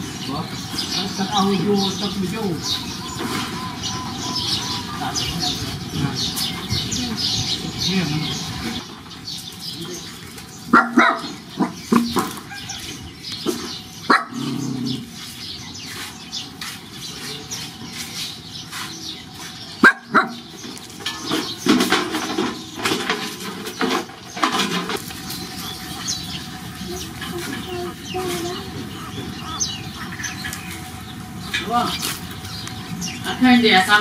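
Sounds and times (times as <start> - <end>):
puppies yelping and squeaking: 2.6 - 6.7, 10.7 - 16.0, 23.6 - 31.0.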